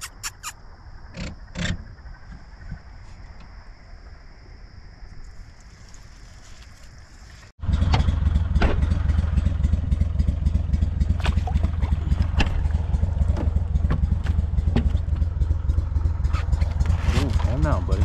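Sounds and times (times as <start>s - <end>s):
outboard motor running: 7.6s - 18.0s.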